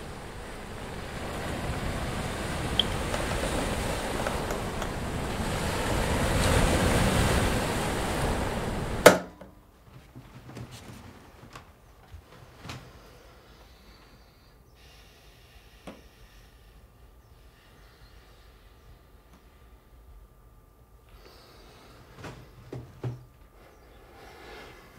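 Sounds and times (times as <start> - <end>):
rushing wind-like roar: 0.0 - 9.1.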